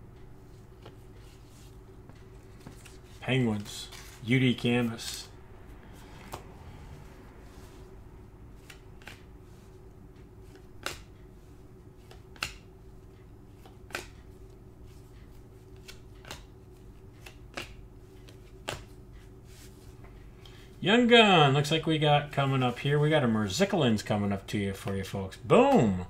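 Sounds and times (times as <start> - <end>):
steady low hum: 0.0 - 26.0
trading cards snapping: 8.6 - 9.3, 10.5 - 11.1, 12.0 - 12.7, 13.6 - 14.2, 15.7 - 16.5, 17.2 - 19.0.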